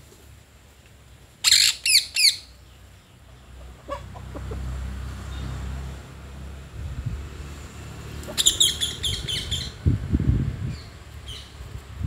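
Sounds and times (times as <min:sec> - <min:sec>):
parakeet screeching calls: 0:01.4 - 0:02.5, 0:08.4 - 0:09.7.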